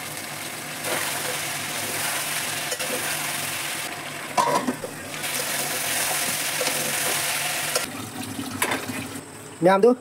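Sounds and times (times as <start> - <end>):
curry sizzling in a wok: 0.0 - 7.9.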